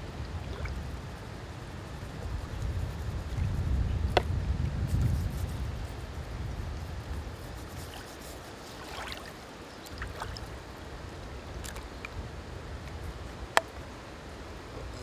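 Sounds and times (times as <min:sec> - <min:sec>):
river water flowing: 0:07.3 - 0:15.0.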